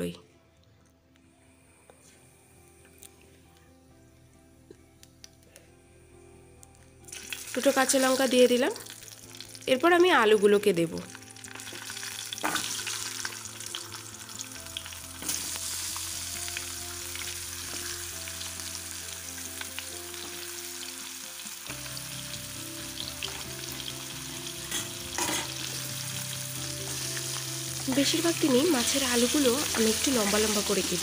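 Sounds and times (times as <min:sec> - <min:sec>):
hot oil sizzling: 0:07.0 - 0:31.0.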